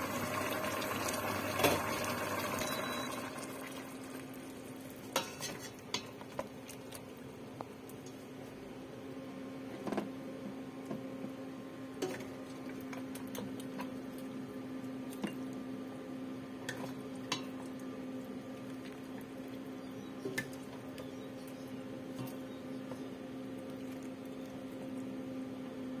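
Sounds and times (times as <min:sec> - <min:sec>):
ladle scooping wet food: 0:16.6 - 0:25.2.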